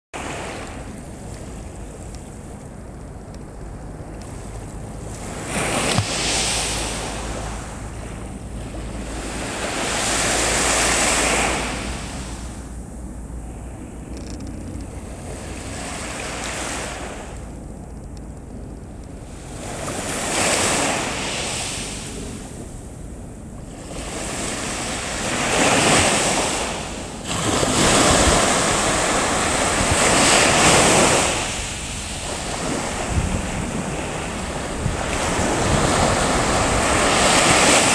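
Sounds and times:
small waves washing ashore: 0.2 - 14.0, 15.0 - 17.6, 19.2 - 37.9
wind rumble on microphone: 0.2 - 37.9.

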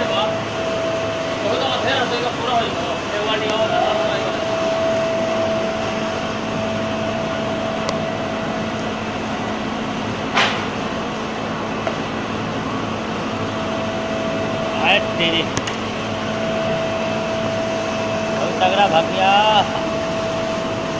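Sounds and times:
air blower roaring: 0.0 - 20.9
steady whine: 0.0 - 20.9
sharp knock: 10.3 - 10.7.

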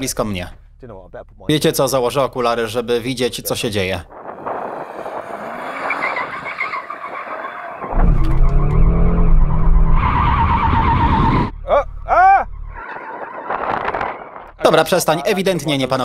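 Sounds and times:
tyres spinning and squealing: 4.1 - 14.6.

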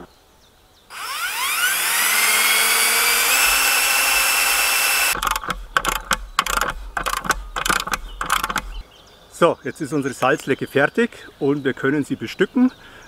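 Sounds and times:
cordless drill whining: 0.9 - 7.4
metallic clicks and knocks: 5.2 - 8.8.

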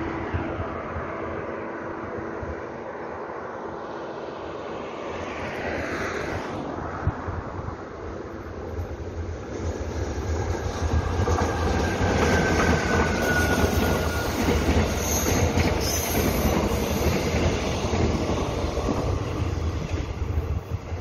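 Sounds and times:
train wheels rumbling on rails: 8.2 - 21.0.

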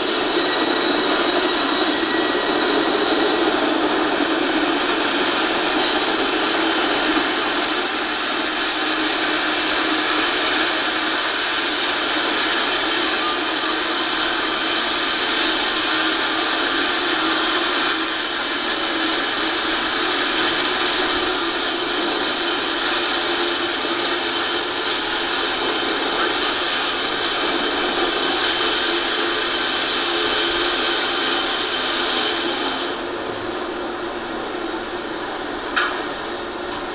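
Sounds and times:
train wheels rolling on rails: 0.0 - 36.9.

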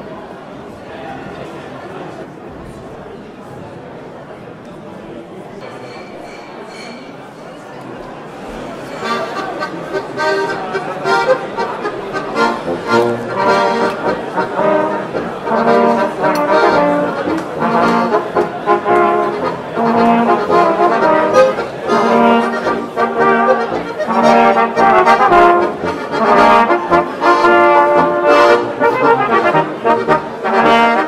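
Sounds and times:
accordion: 8.8 - 31.0
tuba: 9.0 - 31.0
trumpets: 12.4 - 31.0.

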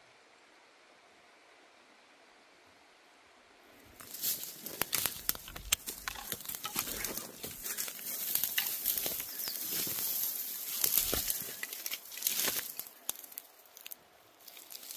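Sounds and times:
footsteps crunching dry leaves: 3.9 - 14.9
twigs snapping: 4.0 - 14.9.

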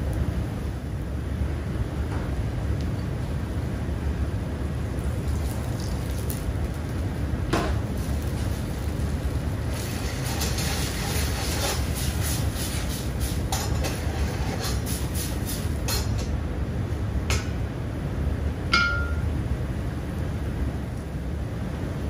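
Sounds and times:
low kitchen rumble: 0.0 - 22.0
onions cooking in a pan: 0.0 - 22.0
sharp ringing clink: 18.7 - 19.3.

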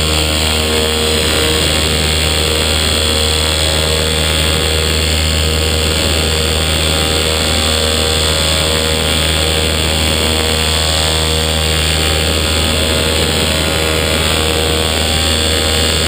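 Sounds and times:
paramotor engine and propeller: 0.0 - 16.0.

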